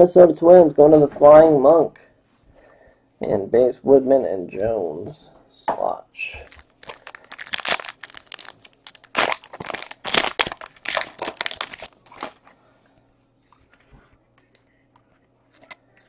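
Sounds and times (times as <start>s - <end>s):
wrapper crinkling as torn open: 6.5s - 12.5s.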